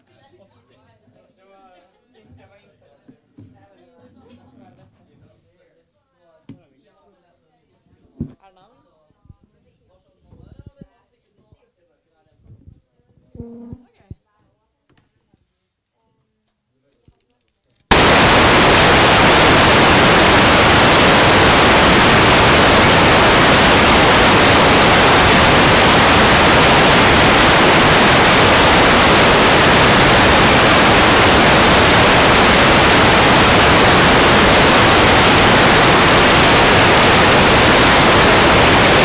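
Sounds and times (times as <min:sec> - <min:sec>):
loud static hiss: 0:17.9 - 0:39.0.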